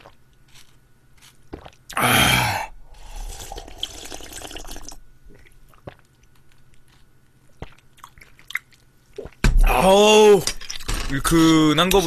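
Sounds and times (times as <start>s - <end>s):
person slurping soup: 1.6s - 6.0s.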